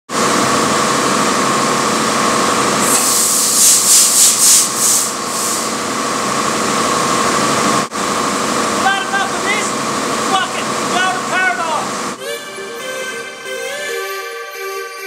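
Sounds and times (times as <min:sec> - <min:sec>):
diesel engine drone: 0:00.1 - 0:14.6
short hissing pulses: 0:02.8 - 0:05.8
constant whine: 0:05.2 - 0:14.5.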